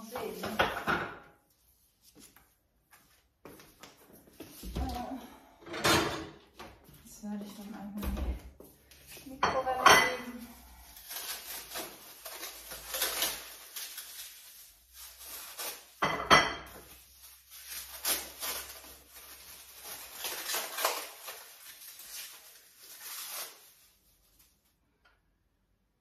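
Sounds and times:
kitchen knocks and clinks: 0.3 - 1.4, 5.6 - 6.5, 9.4 - 10.4, 16.0 - 16.8
packaging rustling: 10.4 - 16.0, 16.7 - 24.8.

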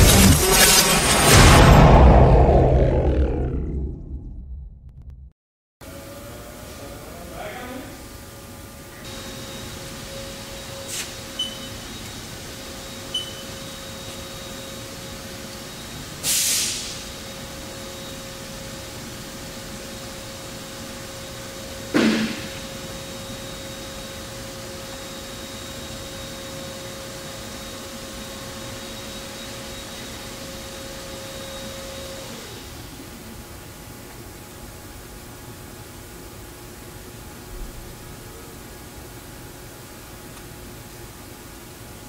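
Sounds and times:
brief hiss: 16.2 - 17.0
loud metal clunk with ring: 21.9 - 22.6.

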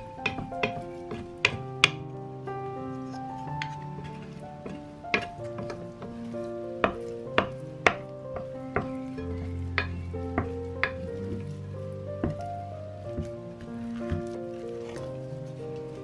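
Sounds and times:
spatula knocking on bowl: 0.0 - 2.0, 4.6 - 5.8, 12.2 - 12.4
background music with held notes: 0.0 - 16.0
spatula stirring sticky dough: 0.0 - 16.0.

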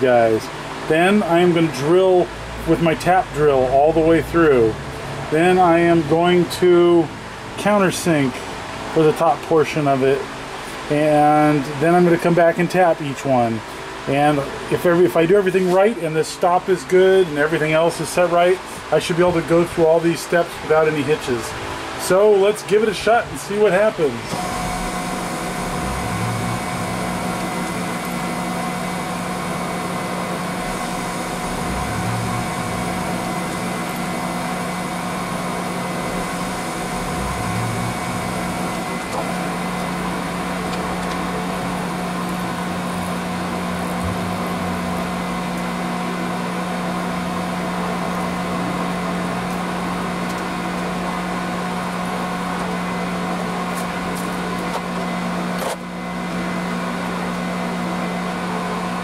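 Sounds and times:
milling machine spindle humming: 23.3 - 59.0.

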